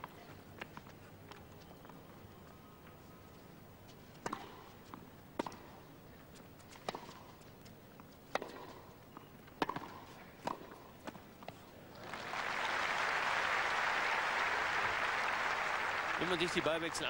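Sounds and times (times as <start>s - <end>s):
racquet striking tennis ball: 8.3s - 8.8s, 9.6s - 10.8s.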